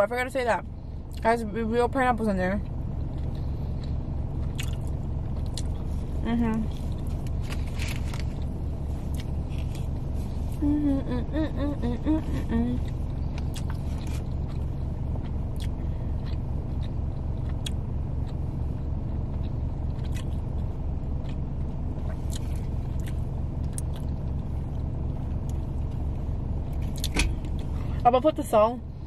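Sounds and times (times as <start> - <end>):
car engine idling: 0.0 - 29.0
person chewing food: 3.0 - 10.7, 12.2 - 26.0.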